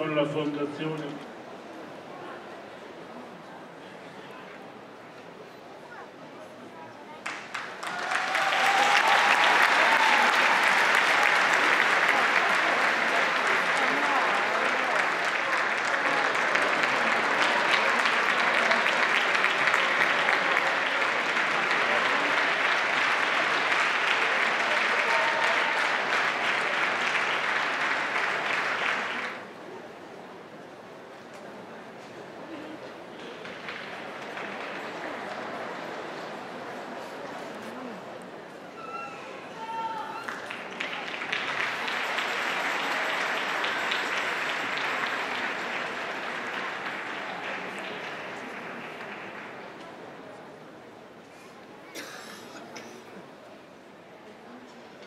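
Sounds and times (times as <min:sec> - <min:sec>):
audience applauding: 0:07.2 - 0:29.4, 0:33.2 - 0:36.6, 0:39.8 - 0:50.1.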